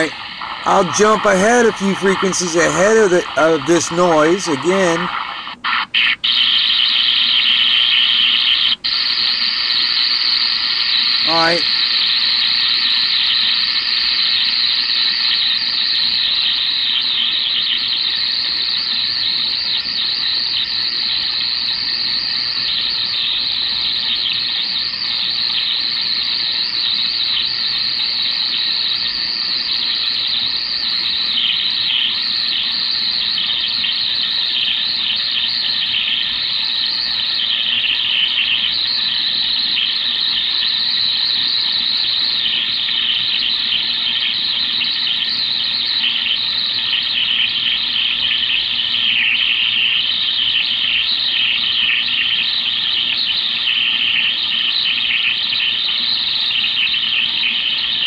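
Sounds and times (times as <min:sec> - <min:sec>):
radio squealing hiss: 0:00.0 - 0:58.0.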